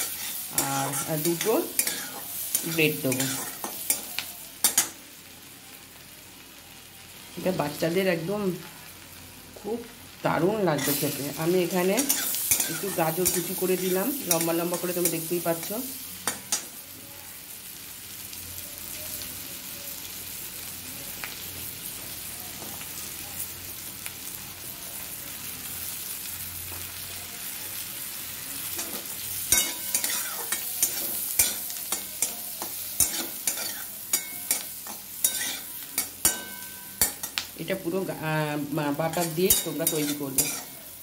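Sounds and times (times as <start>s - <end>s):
metal spatula scraping a pan: 0.0s - 5.0s, 10.8s - 16.6s, 28.7s - 37.4s, 39.0s - 41.0s
vegetables sizzling in butter: 0.0s - 41.0s.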